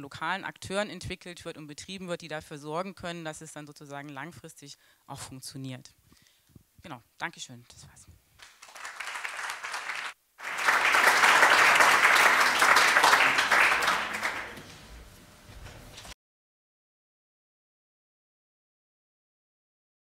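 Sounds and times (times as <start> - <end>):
audience applauding: 8.4 - 14.8.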